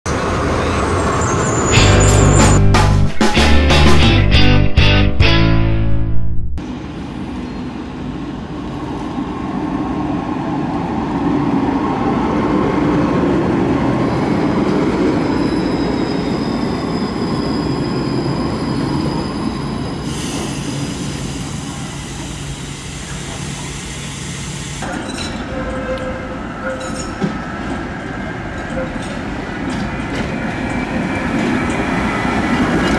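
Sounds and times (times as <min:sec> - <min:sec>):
tram passing: 0:00.1 - 0:04.2, 0:04.8 - 0:32.9
tram wheel squeal: 0:00.2 - 0:02.7, 0:07.1 - 0:08.1, 0:14.0 - 0:32.9.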